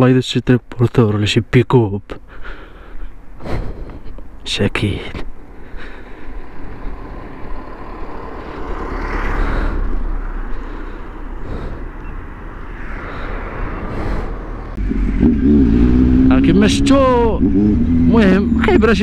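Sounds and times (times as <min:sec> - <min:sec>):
cars passing close by: 0:05.4 - 0:19.0.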